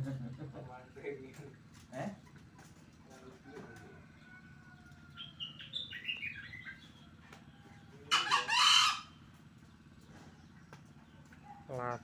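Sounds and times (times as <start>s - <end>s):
rooster crowing: 3.5s - 5.4s.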